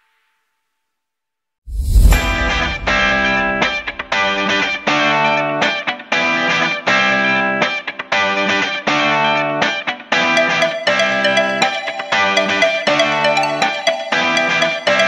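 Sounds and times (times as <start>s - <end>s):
guitar chords: 9.1s - 15.0s.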